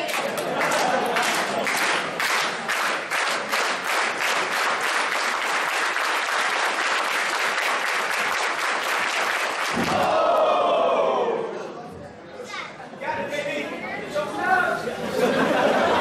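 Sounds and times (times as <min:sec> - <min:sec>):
crowd clapping in rhythm: 0:00.0 - 0:10.4.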